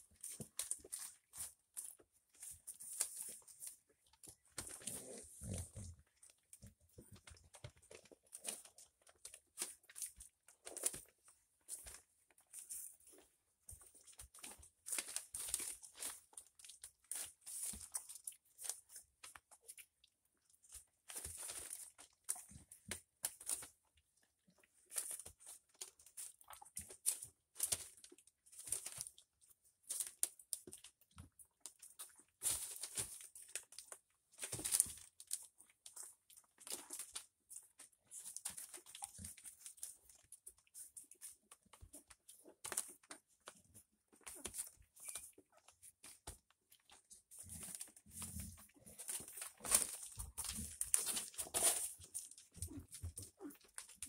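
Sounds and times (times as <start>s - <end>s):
newspaper crinkling and rustling: 0.0s - 5.9s, 13.8s - 19.4s, 31.7s - 54.0s
puppy grunt: 4.8s - 6.0s.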